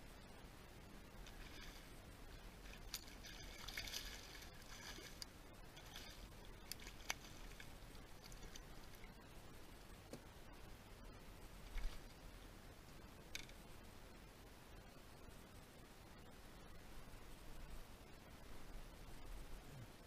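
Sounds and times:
fish splashing in water: 2.7 - 5.2.

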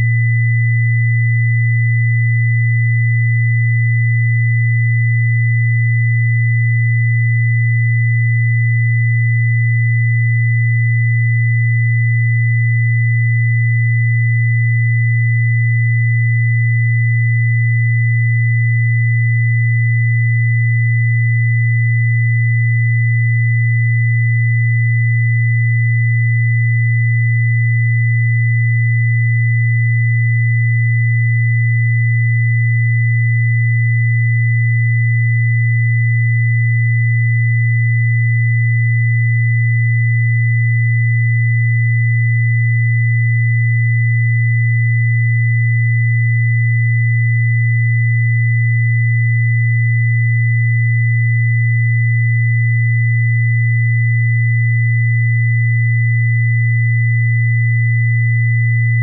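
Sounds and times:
faint high pure tone: 0.0 - 59.0
steady low pure tone: 0.0 - 59.0.

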